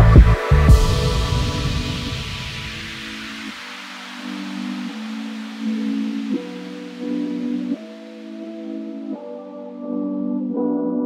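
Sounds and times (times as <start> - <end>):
drum beat: 0.2 - 3.6
hiss: 0.8 - 8.9.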